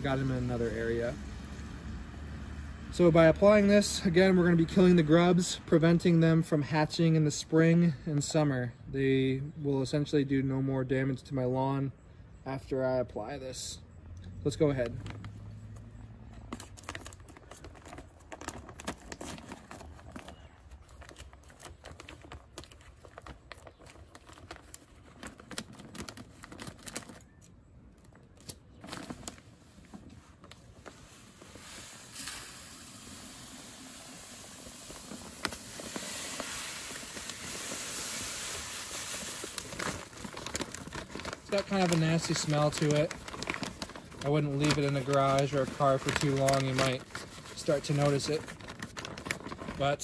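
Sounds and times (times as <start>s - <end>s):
plastic bag crinkling: 16.4s - 50.0s
granules pouring into plastic hopper: 31.6s - 40.4s, 41.4s - 43.5s.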